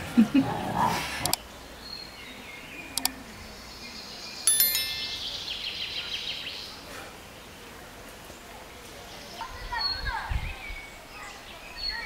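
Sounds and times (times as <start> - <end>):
faint outdoor background: 0.0 - 12.0
bright bell-like chime: 4.5 - 5.7.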